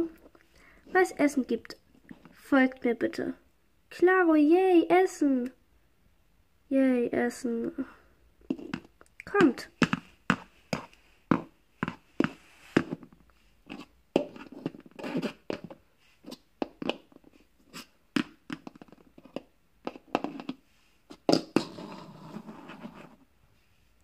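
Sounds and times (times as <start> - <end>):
scraping and handling noise: 8.4 - 23.7.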